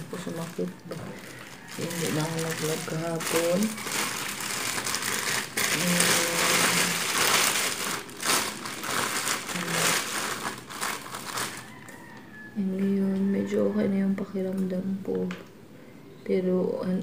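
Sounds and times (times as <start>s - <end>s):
plastic bag crinkling: 0.0s - 12.2s.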